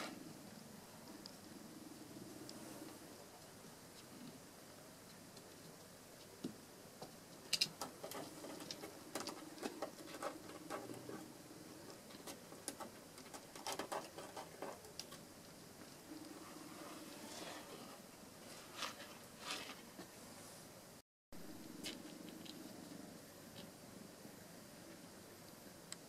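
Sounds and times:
kitten claws scratching: 7.6s - 15.3s.

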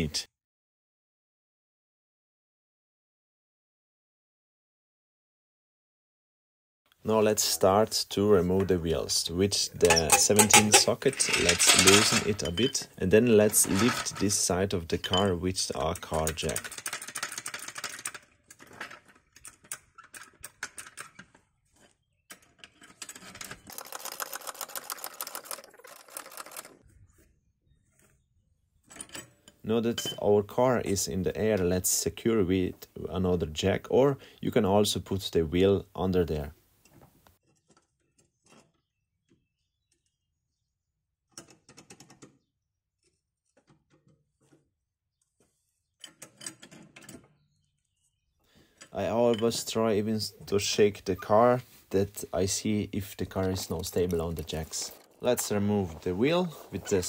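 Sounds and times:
trolley jack clicking and rattling: 9.8s - 12.5s, 15.9s - 21.4s.

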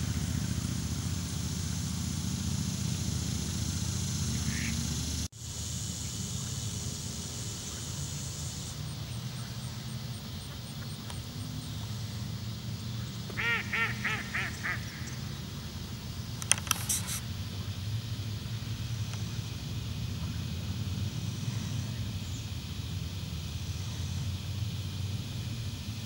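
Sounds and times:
mallard quacking: 4.4s - 4.8s, 13.4s - 15.1s.

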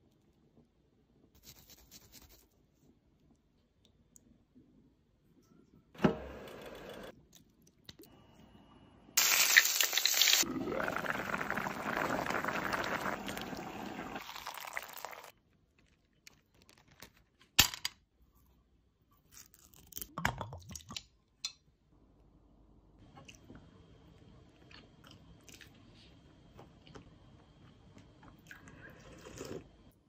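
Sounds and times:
liquid pouring into a pan: 9.2s - 15.3s.

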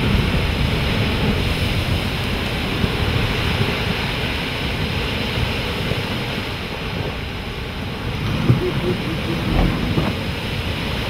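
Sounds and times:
ocean surf: 0.0s - 11.0s
wind: 0.0s - 11.0s
boat engine running: 7.4s - 11.0s.

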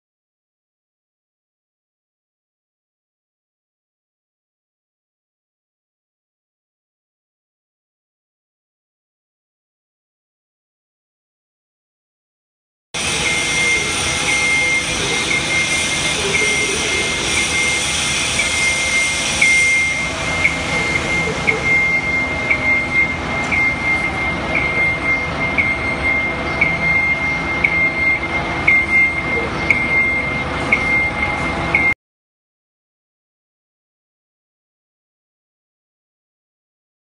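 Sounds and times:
electric drive whirring: 13.0s - 24.8s
pulsing motion alarm tone: 13.0s - 32.0s.

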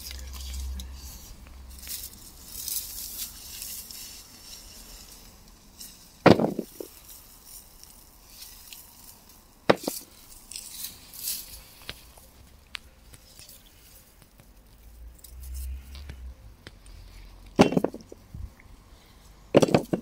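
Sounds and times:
plants rustling in straw: 0.0s - 17.4s
potatoes knocking into plastic crate: 6.3s - 6.9s, 9.7s - 10.0s, 19.6s - 20.0s.

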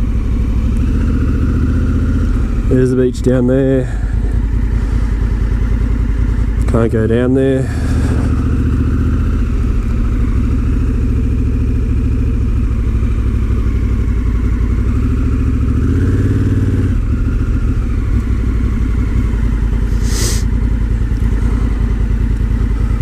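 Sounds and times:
motorcycle engine running: 0.0s - 23.0s
short hiss: 19.9s - 20.5s.

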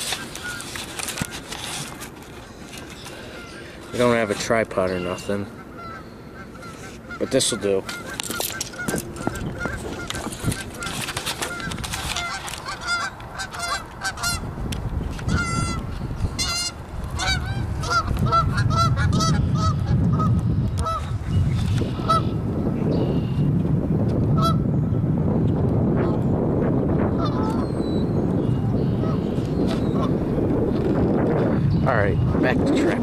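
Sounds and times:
geese honking: 3.2s - 14.4s, 15.3s - 15.8s, 16.4s - 21.1s, 21.9s - 22.4s.

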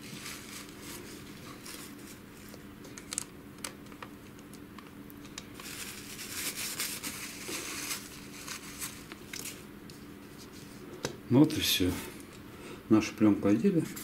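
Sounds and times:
napkin crinkling and rubbing: 5.6s - 10.8s.

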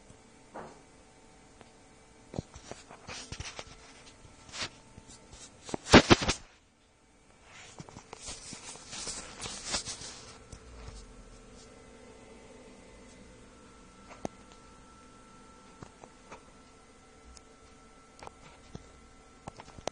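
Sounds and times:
rustling: 7.5s - 11.0s.

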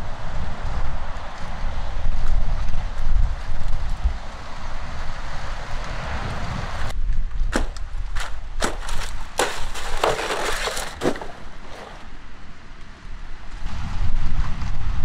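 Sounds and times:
wind buffeting microphone: 0.0s - 9.4s, 13.1s - 15.0s
sharp cracks and knocks: 7.5s - 12.0s.

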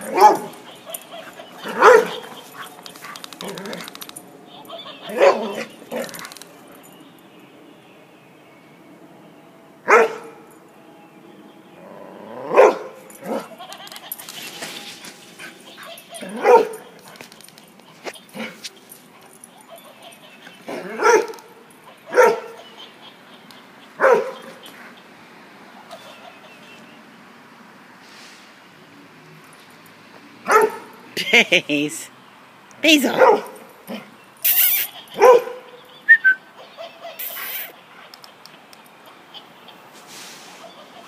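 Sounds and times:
dog barking: 0.1s - 2.3s, 5.1s - 5.7s, 9.9s - 10.4s, 12.5s - 13.4s, 16.2s - 16.9s, 20.7s - 21.4s, 22.1s - 22.6s, 24.0s - 24.6s, 30.5s - 30.9s, 33.1s - 34.0s, 35.2s - 35.8s.

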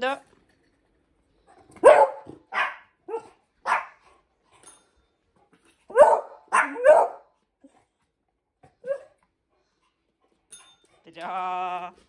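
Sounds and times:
small dog barking: 1.8s - 4.0s, 5.9s - 7.3s.

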